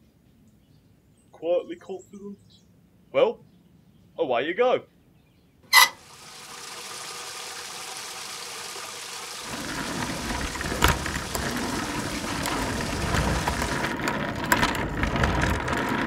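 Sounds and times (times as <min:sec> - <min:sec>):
water gushing from a tap: 0:05.8 - 0:13.9
deep rumble of cart rolling: 0:09.4 - 0:16.0.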